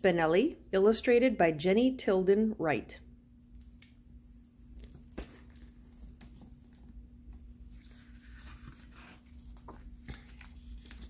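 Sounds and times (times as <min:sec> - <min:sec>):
faint steady hum: 0:00.0 - 0:11.0
book cover and paper rustling: 0:04.6 - 0:11.0.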